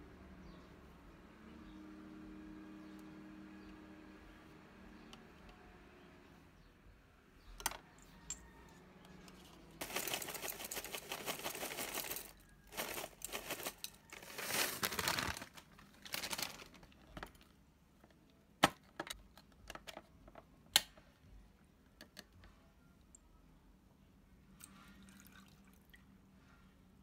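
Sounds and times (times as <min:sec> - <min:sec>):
cereal pouring into glass bowl: 0:09.8 - 0:16.6
plastic bag crinkling: 0:09.8 - 0:17.5.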